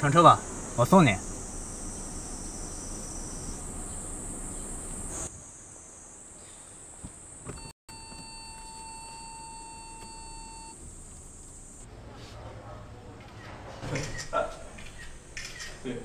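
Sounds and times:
insects buzzing: 0.0 - 11.8
steady beeping tone: 7.6 - 10.8.

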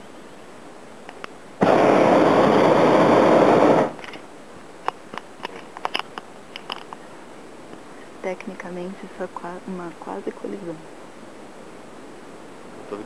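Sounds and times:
propane burner blast: 1.6 - 4.1.

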